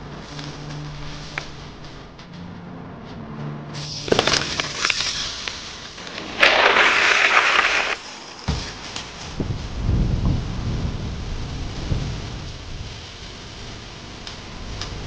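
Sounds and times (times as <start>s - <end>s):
loud rush of noise: 1.6s - 12.5s
debris clattering: 5.9s - 8.0s.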